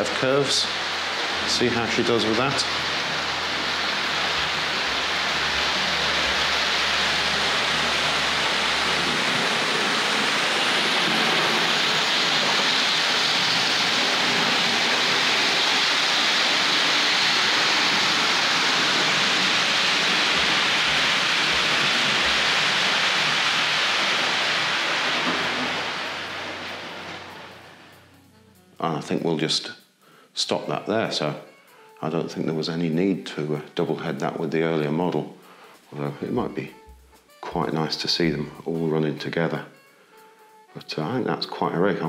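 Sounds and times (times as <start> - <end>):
model train motor whirring: 0.0 - 28.4.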